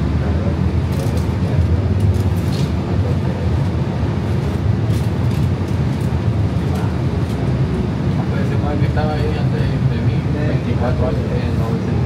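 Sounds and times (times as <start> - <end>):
light-rail car rumbling on track: 0.0 - 12.0.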